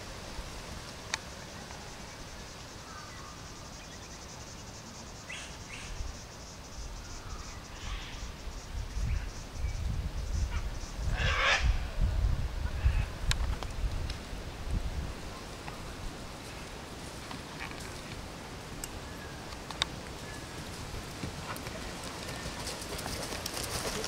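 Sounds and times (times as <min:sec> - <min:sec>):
insects chirring: 0:00.0 - 0:24.0
rumbling wind gusts: 0:06.7 - 0:24.0.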